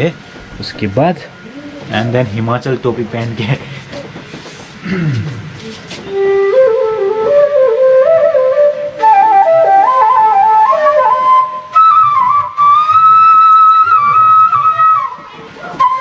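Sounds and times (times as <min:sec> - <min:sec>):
bamboo flute folk melody: 0:05.9 - 0:16.0.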